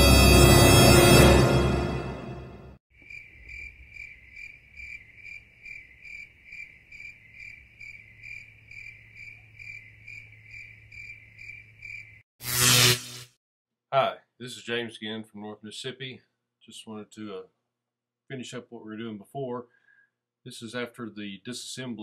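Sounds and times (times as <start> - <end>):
music: 0.0 - 2.8
cricket chirping: 3.0 - 12.2.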